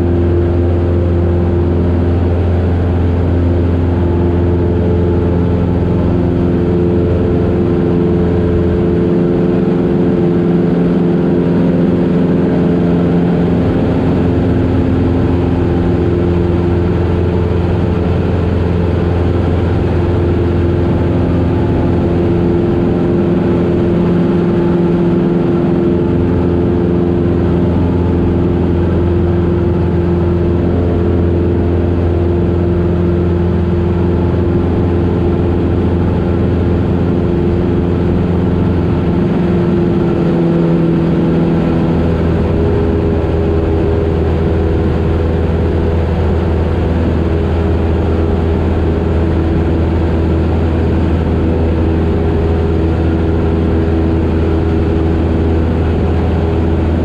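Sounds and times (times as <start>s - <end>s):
propeller plane engine droning: 0.0s - 57.0s.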